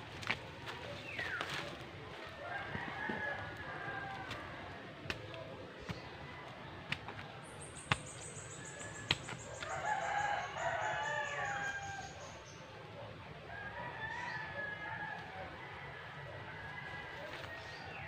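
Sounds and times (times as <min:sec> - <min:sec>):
rooster crowing: 0:02.4 - 0:04.6, 0:09.6 - 0:12.2
hand tool knocking in soil: 0:04.1 - 0:09.9.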